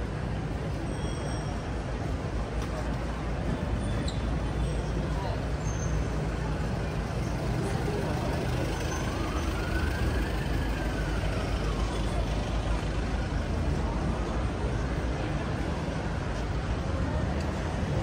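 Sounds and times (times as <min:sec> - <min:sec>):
traffic rumble: 0:00.0 - 0:18.0
emergency vehicle siren wailing: 0:07.6 - 0:14.8.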